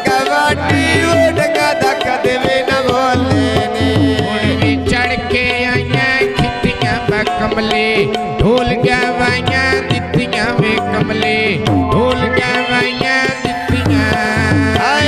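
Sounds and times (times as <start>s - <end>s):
man singing: 0.0s - 15.0s
tabla drum strokes: 0.0s - 15.0s
steady held tones: 9.9s - 15.0s.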